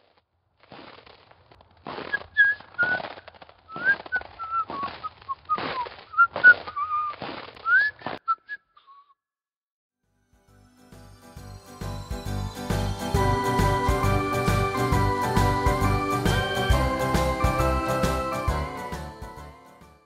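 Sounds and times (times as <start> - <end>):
person whistling a tune: 3.7 - 4.9, 6.2 - 9.1, 13.2 - 19.4.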